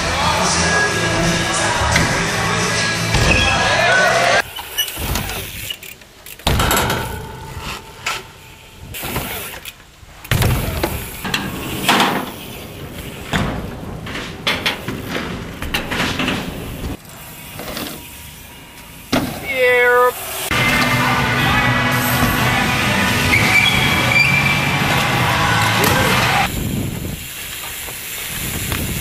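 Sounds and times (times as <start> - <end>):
bike tyres rolling on concrete: 0.0 - 29.0
bike landing thuds: 6.4 - 8.2, 10.3 - 17.0.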